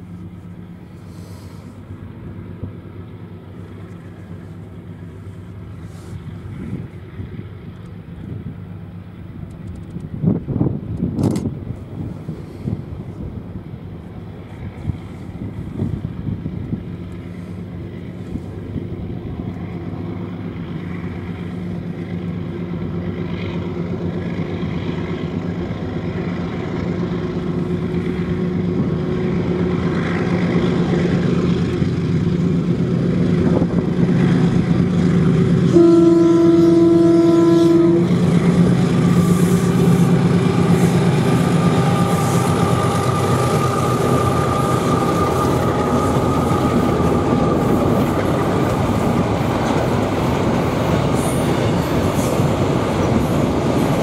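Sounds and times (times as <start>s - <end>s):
diesel locomotive engines: 0.0s - 54.0s
train horn blast: 35.6s - 47.8s.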